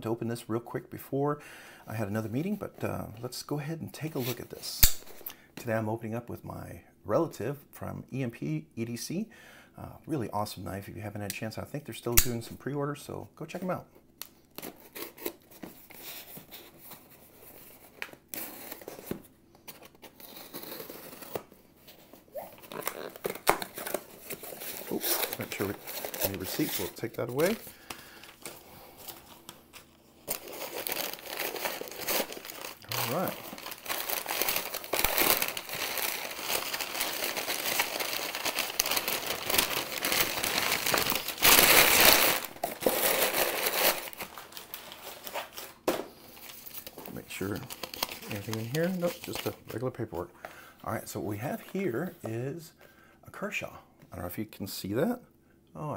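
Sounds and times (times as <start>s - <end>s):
packing paper crumpling: 19.8s - 50.2s.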